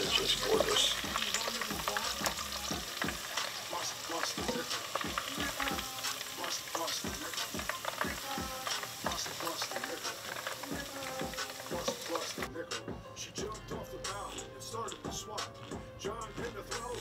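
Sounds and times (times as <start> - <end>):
squid sizzling in deep fryer oil: 0.0 - 12.5.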